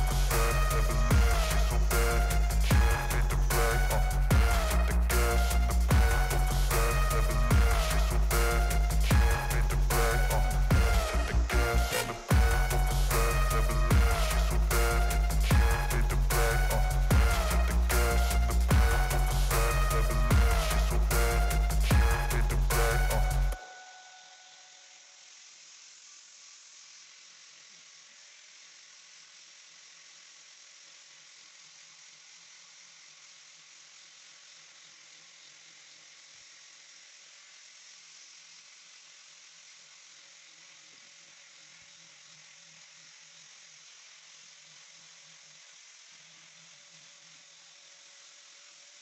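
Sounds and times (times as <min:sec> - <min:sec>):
angle grinder sanding wood: 0:00.0 - 0:23.6.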